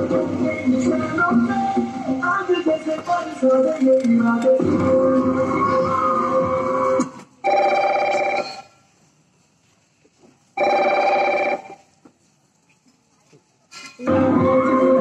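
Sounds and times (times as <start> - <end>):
music: 0.0 - 7.2, 14.0 - 15.0
telephone ringing: 7.4 - 8.7, 10.6 - 11.9.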